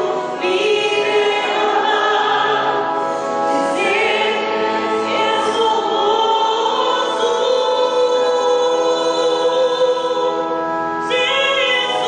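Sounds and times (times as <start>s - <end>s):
sustained organ chord: 0.0s - 12.0s.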